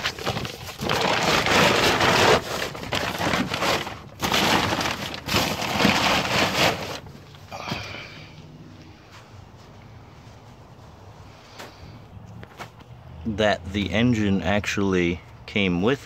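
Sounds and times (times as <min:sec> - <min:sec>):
plastic tarp crinkling and rustling: 0:00.0 - 0:07.9.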